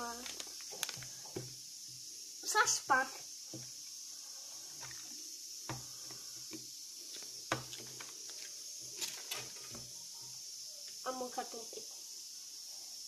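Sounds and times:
foil wrappers rustling: 0.0s - 1.4s, 7.1s - 9.8s.

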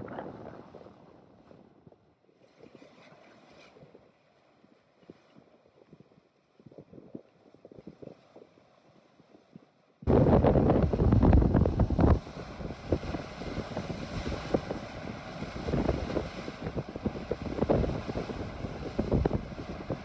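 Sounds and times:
water rushing along hull: 0.0s - 20.0s
wind buffeting microphone: 10.0s - 20.0s.

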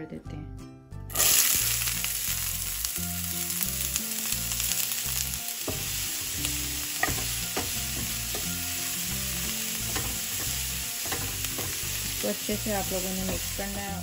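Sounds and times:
onion sizzling in hot oil: 1.1s - 14.0s
spatula knocking and scraping pan: 5.6s - 8.8s, 9.4s - 13.9s.

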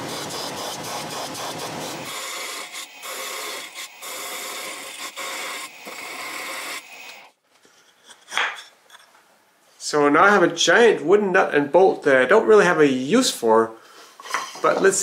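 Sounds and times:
belt sander grinding wood: 0.0s - 7.3s
lathe machining wood: 0.1s - 7.3s.

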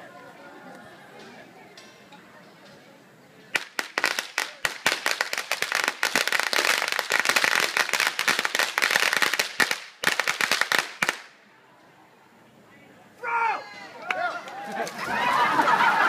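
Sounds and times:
firecrackers cracking: 3.5s - 11.4s.

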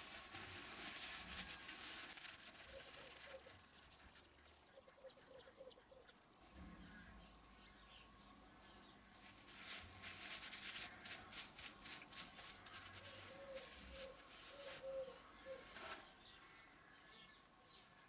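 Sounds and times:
paper towel rubbing and rustling: 0.0s - 4.4s, 9.1s - 11.8s.

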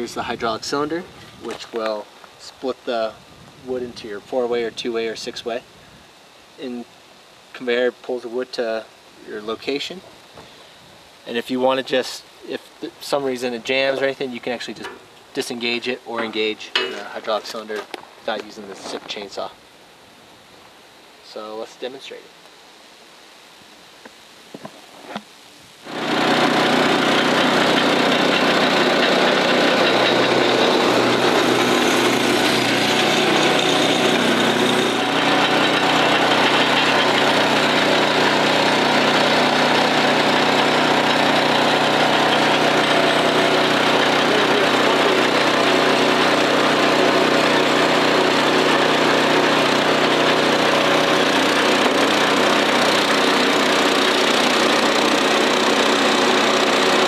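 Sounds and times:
engine running steadily: 25.9s - 57.0s.

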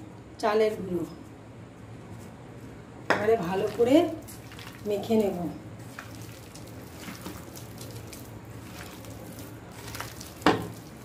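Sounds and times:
hand squelching chicken in flour: 3.7s - 11.0s.

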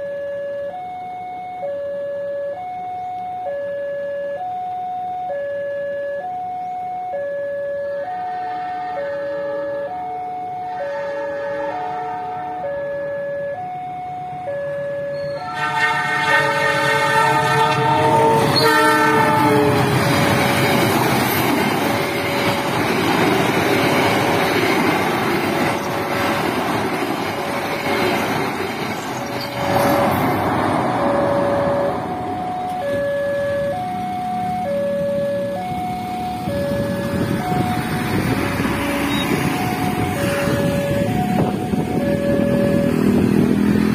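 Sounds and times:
train air horn: 8.2s - 12.7s, 15.1s - 20.1s, 30.9s - 32.4s, 38.6s - 41.5s
train wheels on rails: 13.6s - 43.9s
level crossing alarm chime: 38.8s - 43.0s.

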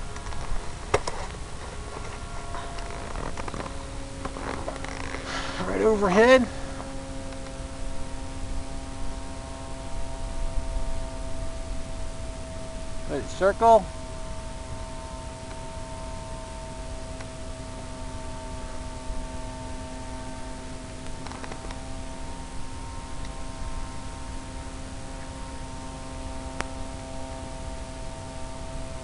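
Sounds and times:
steady hum of constant tones: 0.0s - 29.0s
even hiss: 4.8s - 6.8s.

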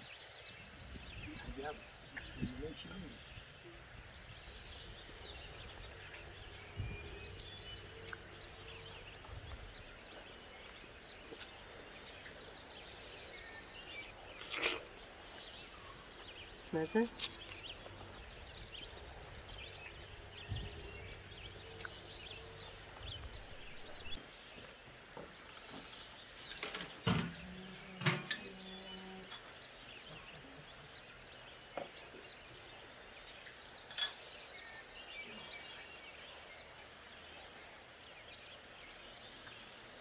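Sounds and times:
faint birdsong: 0.0s - 40.0s
dishes clinking set down: 28.0s - 28.6s, 33.9s - 34.3s.

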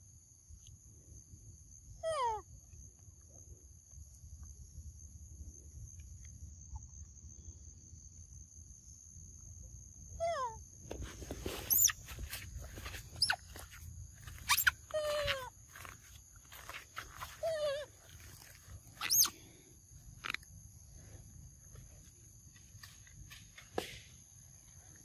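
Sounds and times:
high insect drone: 0.0s - 25.0s
sharp high squeaks: 11.5s - 15.5s, 17.2s - 19.4s
monkey squealing calls: 11.7s - 12.0s, 13.1s - 13.6s, 14.4s - 15.5s, 17.4s - 19.4s.

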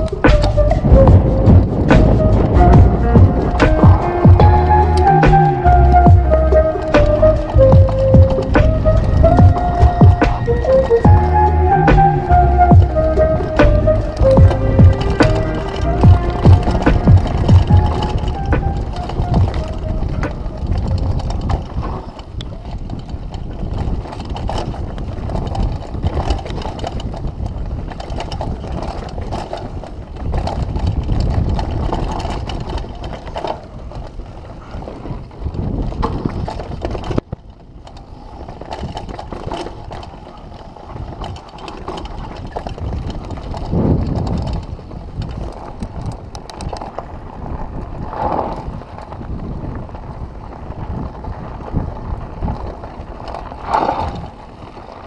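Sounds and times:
chain and frame rattling: 0.0s - 49.7s
bike tyre rumble on dirt: 0.0s - 55.0s.

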